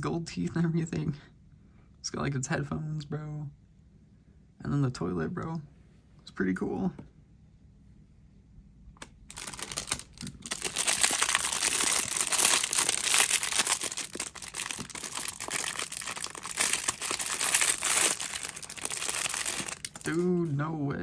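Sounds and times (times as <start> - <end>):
plastic bags crinkling: 9.3 - 20.4.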